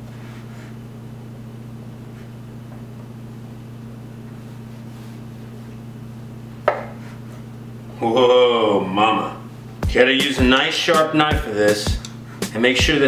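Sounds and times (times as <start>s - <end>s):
low electrical hum: 0.0s - 13.0s
knife knocking on cutting board: 6.6s - 7.0s.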